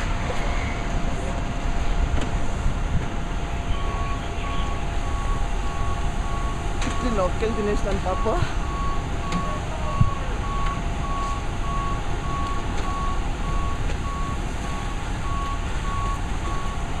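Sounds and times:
fire engines rumbling: 0.0s - 17.0s
electronic warning beeps: 3.7s - 16.9s.

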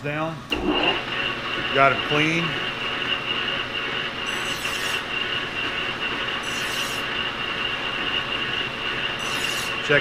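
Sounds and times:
lathe running with high whine: 0.4s - 10.0s
hand file rasping on metal: 4.3s - 5.0s, 6.4s - 7.1s, 9.2s - 9.9s.

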